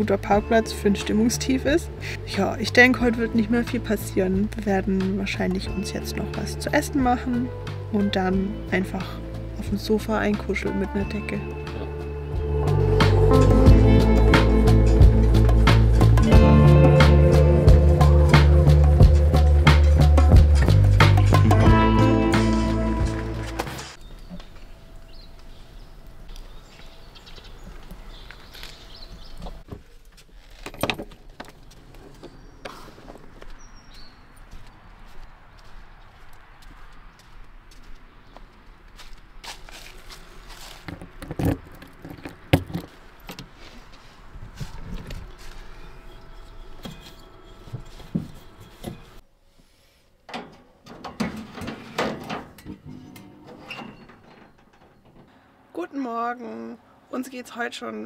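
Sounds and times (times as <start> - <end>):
gas valve knocks and rattles: 50.3 - 55.4.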